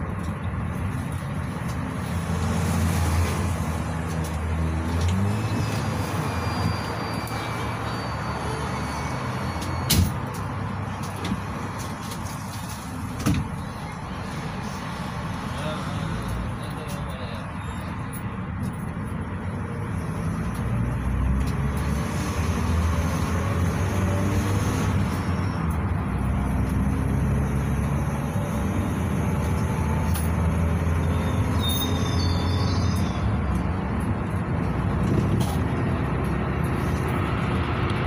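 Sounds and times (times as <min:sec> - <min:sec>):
tyre and road noise: 0:00.0 - 0:38.0
engine hum: 0:18.0 - 0:38.0.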